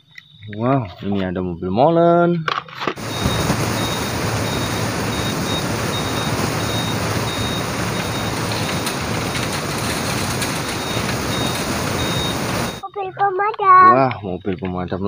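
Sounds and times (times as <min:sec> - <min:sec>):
diesel engines running: 0:03.0 - 0:12.8
high-pitched warning beeper: 0:03.0 - 0:13.0.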